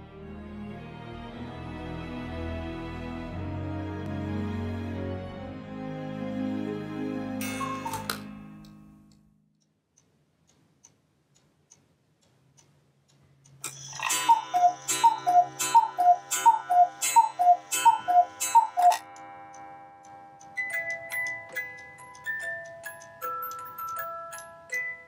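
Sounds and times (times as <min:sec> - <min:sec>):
two-note cuckoo calls: 0:07.4 - 0:08.3, 0:13.7 - 0:19.2
clock ticking: 0:07.4 - 0:25.0
low hum of clockwork: 0:07.4 - 0:25.0.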